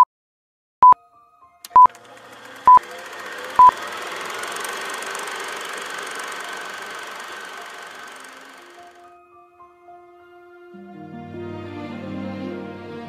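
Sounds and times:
short electronic beeps: 0:01.7 - 0:01.9
steady whirring noise: 0:01.9 - 0:09.0.

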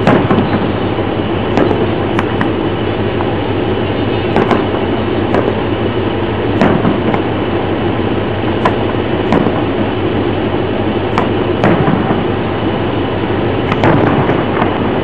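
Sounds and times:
firework shells bursting: 0:00.0 - 0:03.5, 0:04.2 - 0:05.8, 0:06.5 - 0:07.6, 0:08.5 - 0:10.0, 0:11.1 - 0:12.8, 0:13.5 - 0:15.0
loud rushing noise: 0:00.0 - 0:15.0.

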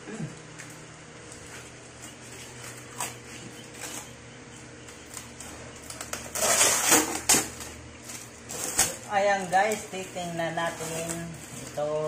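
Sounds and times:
packing tape peeling: 0:05.1 - 0:09.8
cardboard rustling: 0:05.2 - 0:12.0
cardboard ripping: 0:06.0 - 0:09.8
cardboard scraping: 0:06.2 - 0:09.8.

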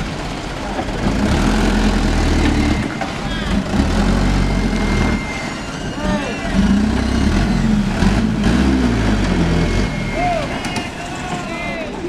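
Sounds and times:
truck engine under load: 0:00.0 - 0:12.0
people shouting and talking: 0:02.4 - 0:12.0.

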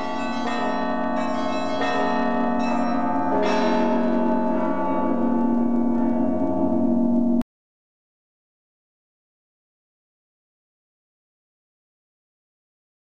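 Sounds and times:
church bells ringing: 0:00.0 - 0:07.4.

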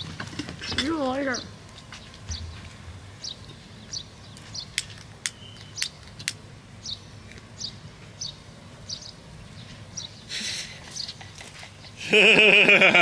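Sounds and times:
bird chirping: 0:00.0 - 0:06.1, 0:06.8 - 0:12.0.

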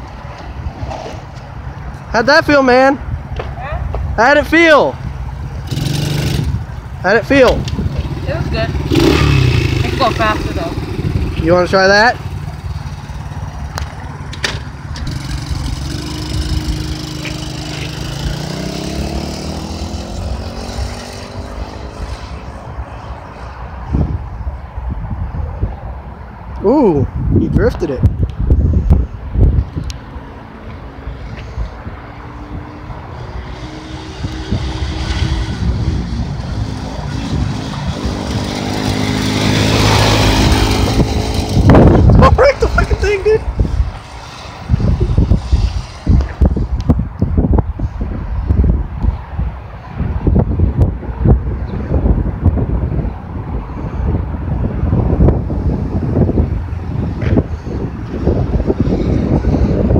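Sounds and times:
quad engine accelerating: 0:05.4 - 0:22.6, 0:32.2 - 0:47.9.

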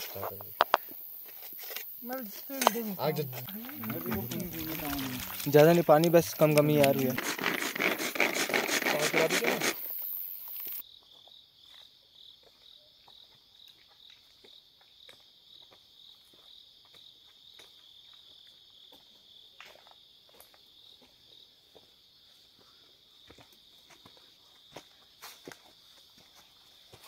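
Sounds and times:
insects chirring: 0:00.0 - 0:27.0
scattered clicks and rustles: 0:02.5 - 0:09.8.

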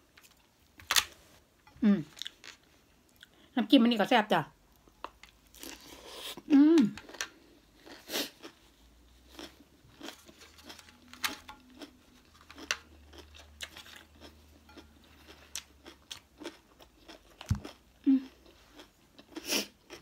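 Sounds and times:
close-up chewing: 0:05.0 - 0:20.0.

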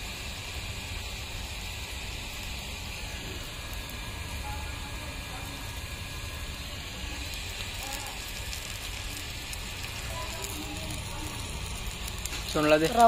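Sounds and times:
fish sizzling in a pan: 0:00.0 - 0:13.0.

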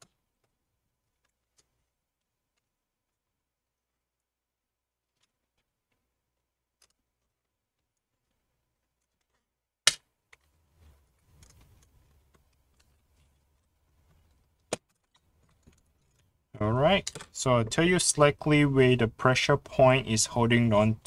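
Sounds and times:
faint handling noise: 0:05.0 - 0:09.6, 0:10.2 - 0:17.8.

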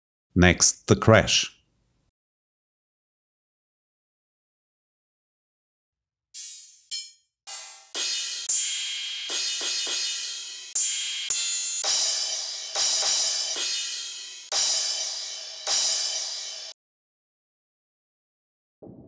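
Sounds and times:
cymbal hits: 0:06.9 - 0:16.8.

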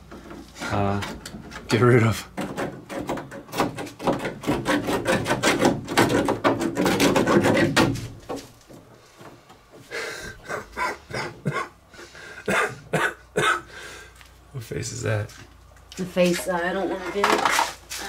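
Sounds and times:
caulk scraping: 0:00.1 - 0:09.5.

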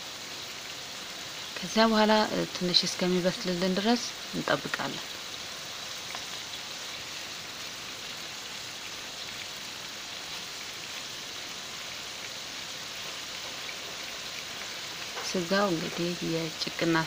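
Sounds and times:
steaks sizzling in a frying pan: 0:00.0 - 0:17.0.

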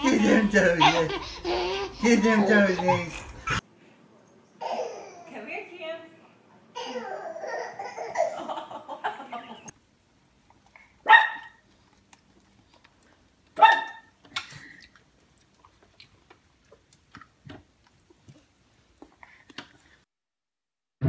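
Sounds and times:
dog barking: 0:11.0 - 0:11.6, 0:13.6 - 0:14.1.

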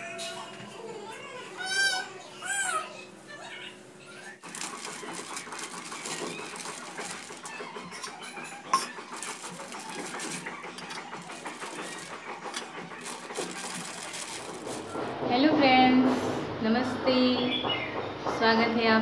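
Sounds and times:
dry snacks being poured: 0:04.4 - 0:07.6, 0:09.0 - 0:15.0
plastic snack bag crinkling: 0:04.4 - 0:08.2, 0:08.8 - 0:15.2.

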